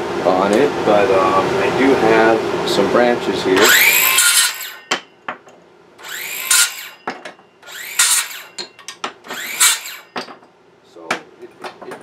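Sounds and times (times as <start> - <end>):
circular saw whirring: 3.6 - 4.9, 6.0 - 8.6, 9.3 - 10.2.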